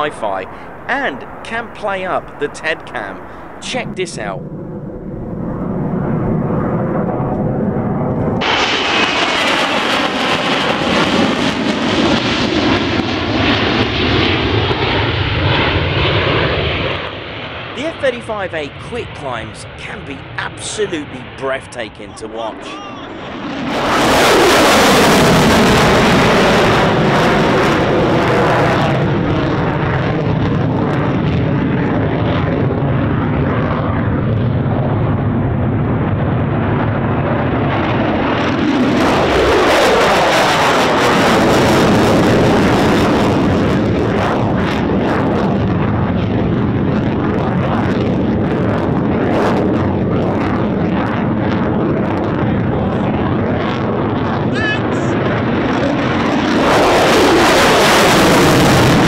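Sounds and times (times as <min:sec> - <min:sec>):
fighter jet roaring: 0:00.0 - 0:59.0.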